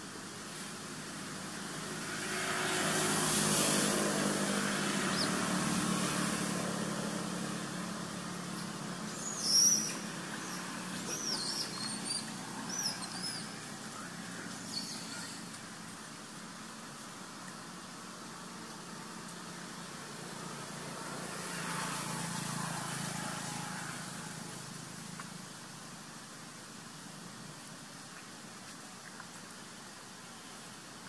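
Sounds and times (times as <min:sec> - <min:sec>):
vehicle engine passing: 0:01.5 - 0:15.5, 0:20.0 - 0:24.8
short high chirping calls: 0:09.1 - 0:13.6.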